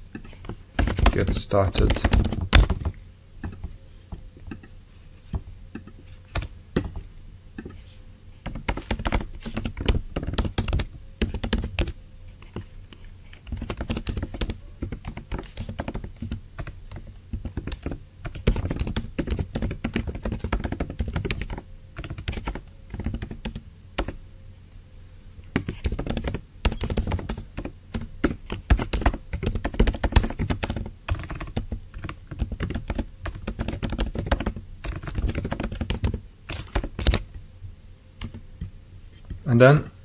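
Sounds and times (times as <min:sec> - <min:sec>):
computer keyboard typing: 0:00.2 - 0:03.7, 0:08.4 - 0:12.7, 0:13.4 - 0:24.2, 0:25.6 - 0:37.2.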